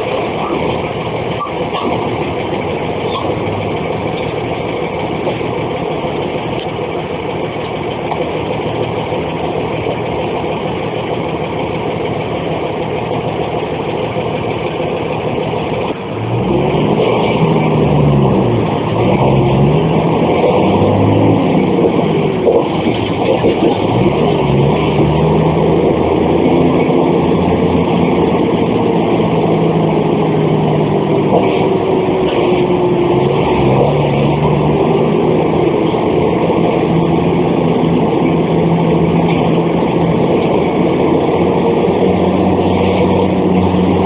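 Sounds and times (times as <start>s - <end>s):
bus diesel engine running: 0.0s - 44.0s.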